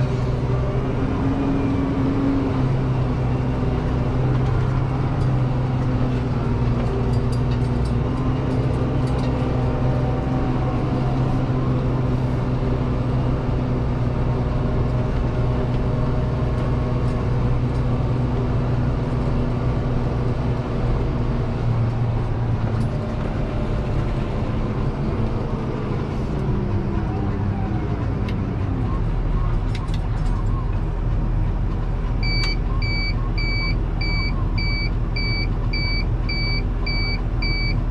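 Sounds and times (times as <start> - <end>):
tractor diesel engine running: 0.0 - 37.9.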